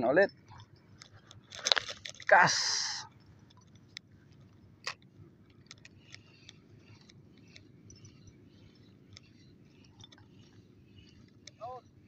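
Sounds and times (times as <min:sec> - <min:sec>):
fishing reel ticking: 0:05.7 - 0:11.8.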